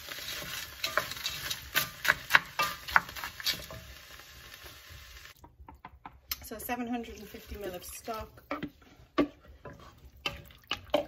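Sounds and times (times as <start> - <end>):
vegetables sizzling: 0.0 - 5.4, 6.8 - 11.0
wooden spoon knocking pot: 5.4 - 6.4.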